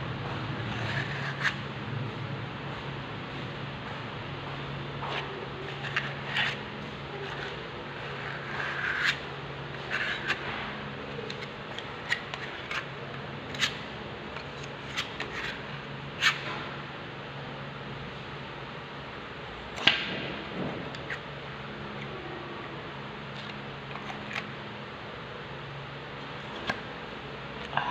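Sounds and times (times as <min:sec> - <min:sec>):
steady low hum: 0:00.0 - 0:27.9
handling scrapes and clicks: 0:00.6 - 0:01.6, 0:05.0 - 0:16.6, 0:23.3 - 0:24.6.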